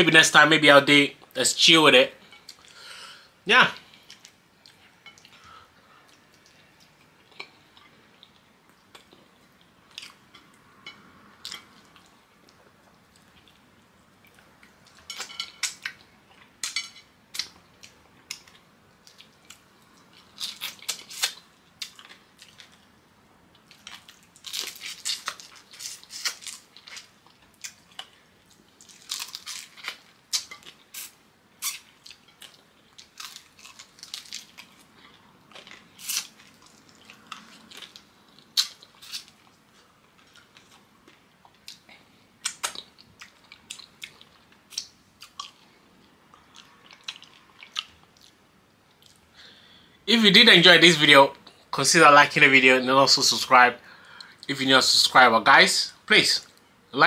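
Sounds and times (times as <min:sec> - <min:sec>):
person chewing and crunching: 0:12.8 - 0:22.9, 0:23.5 - 0:49.3.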